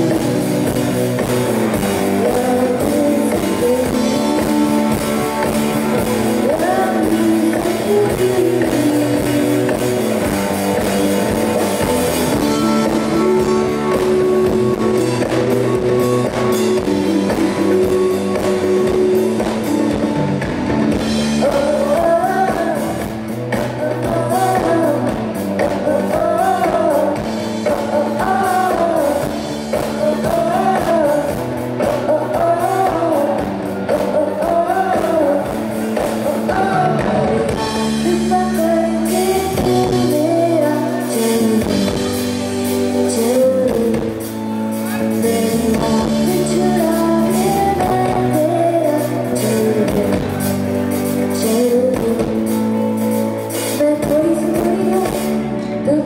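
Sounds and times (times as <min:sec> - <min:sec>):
busy drums: 0:00.0 - 0:56.0
pop-rock band playing: 0:00.0 - 0:56.0
woman singing lead: 0:00.0 - 0:56.0.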